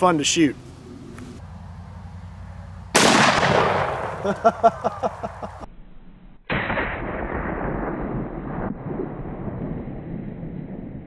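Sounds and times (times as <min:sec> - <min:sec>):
revolver gunshot with echo: 0:02.9 - 0:04.4, 0:06.5 - 0:09.6.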